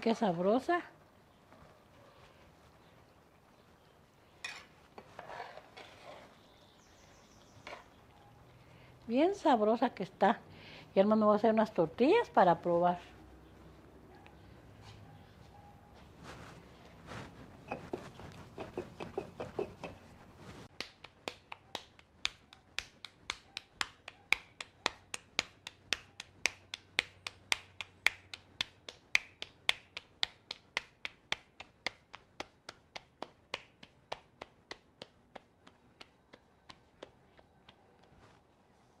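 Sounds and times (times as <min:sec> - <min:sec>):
hands patting dough: 0:16.1 - 0:38.6.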